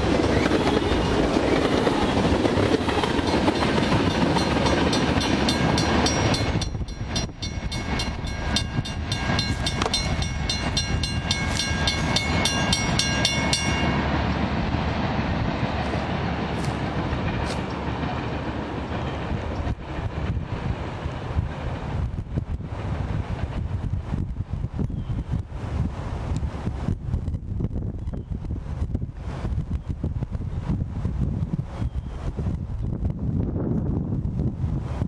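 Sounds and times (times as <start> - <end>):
freight train wheels rumbling: 0.0 - 27.8
crossing bell ringing: 2.9 - 14.4.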